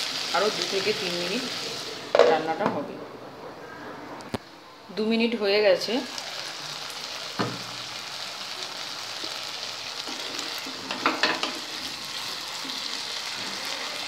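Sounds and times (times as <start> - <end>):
curry sizzling in a pan: 0.0 - 2.6, 5.5 - 14.0
knock: 7.4 - 7.7.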